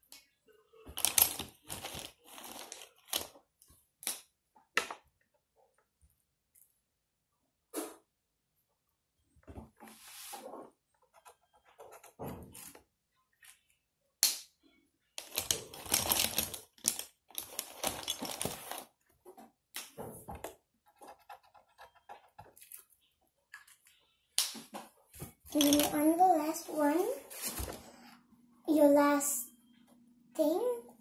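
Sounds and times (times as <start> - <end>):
marker scratching on paper: 20.8 - 22.6.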